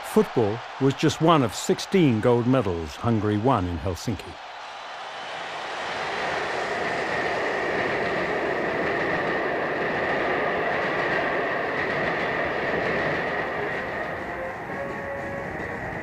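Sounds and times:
train rumbling rattle: 6.2 - 16.0.

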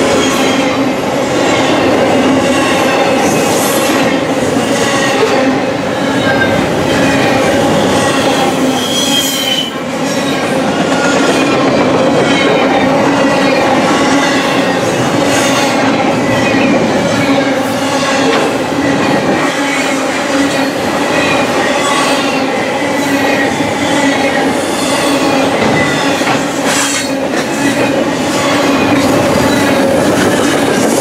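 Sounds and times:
steel wheels clattering on rail: 0.0 - 31.0
high wheel squeal: 6.0 - 10.3.

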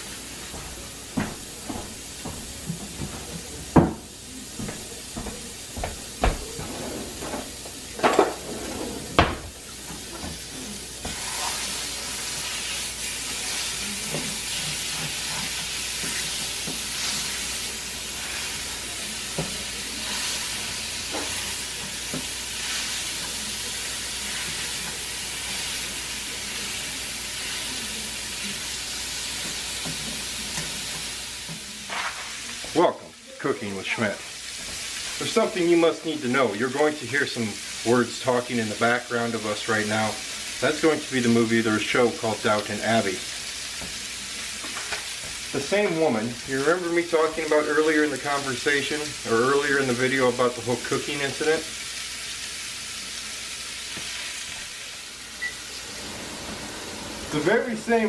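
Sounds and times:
meat sizzling in a frying pan: 9.4 - 58.0
spatula stirring in a pan: 9.7 - 32.8, 33.8 - 37.0, 42.5 - 48.6.

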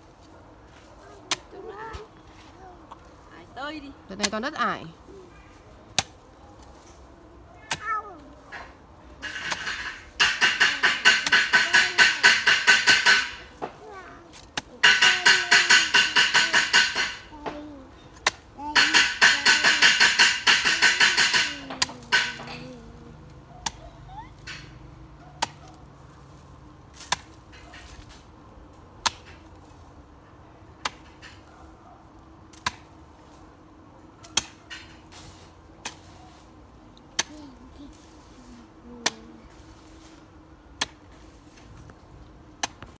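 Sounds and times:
hoe striking dry soil: 8.6 - 22.8, 26.9 - 28.3.

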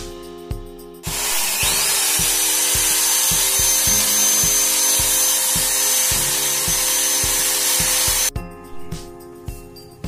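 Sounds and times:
background music with beat: 0.0 - 10.0
electric drill boring into wall: 1.0 - 8.3.

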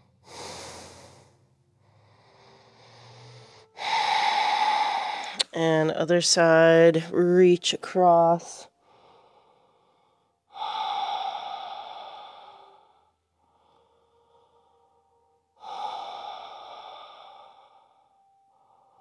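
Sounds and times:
person exhaling: 0.0 - 1.4, 2.2 - 5.5, 10.5 - 14.7, 15.6 - 18.0.

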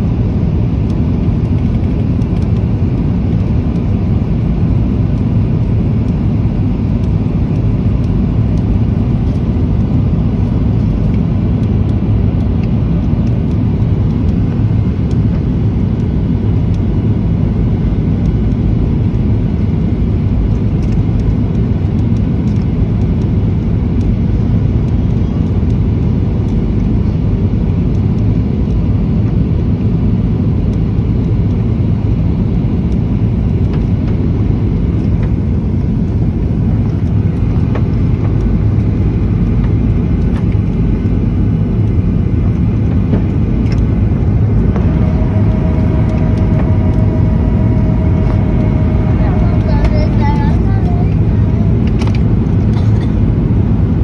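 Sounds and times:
jet engines rumbling: 0.0 - 54.0
rushing air: 34.8 - 52.8.

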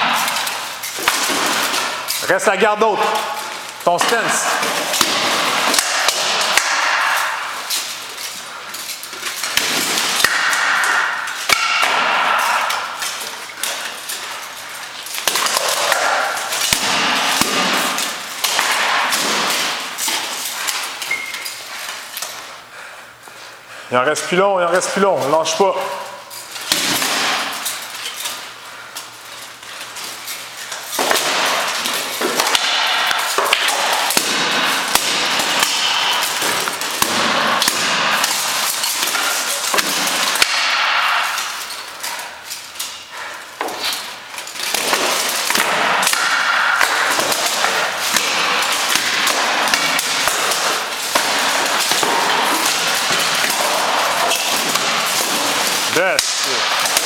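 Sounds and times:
weapons striking armour and shield: 0.0 - 7.7, 9.5 - 13.0, 15.3 - 20.5, 31.0 - 41.6.

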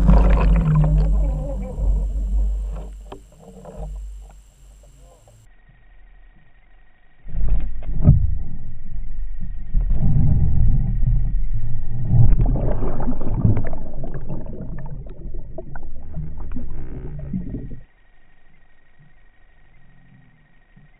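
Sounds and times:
underwater rumbling and rushing: 0.0 - 4.9, 7.3 - 17.9.

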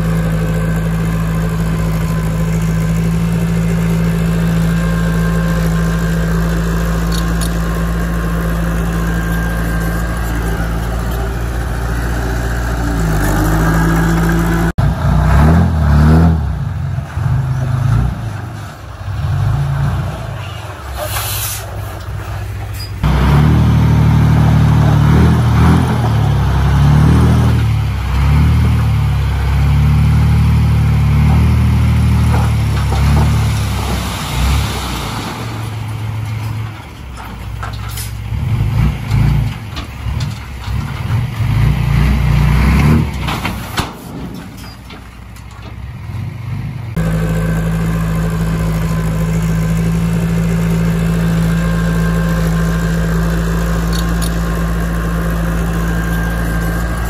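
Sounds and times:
diesel engine of heavy machine: 0.0 - 57.0
brief high hiss: 21.0 - 21.9.

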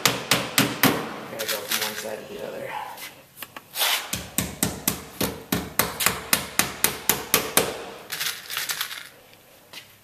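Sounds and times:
hammer striking nails: 0.0 - 1.1, 4.1 - 8.0.

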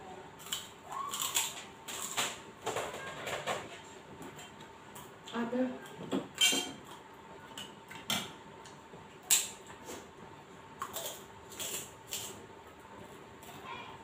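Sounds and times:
food crunching: 0.3 - 2.4, 10.7 - 13.6.

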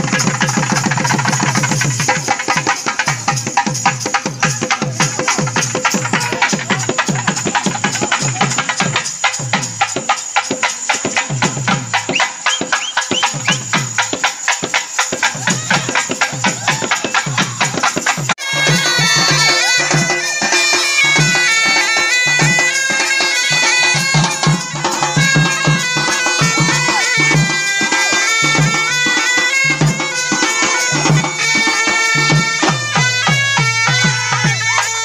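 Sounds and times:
barrel drums and side drums: 0.0 - 35.0
horns playing reedy melody: 18.4 - 35.0.

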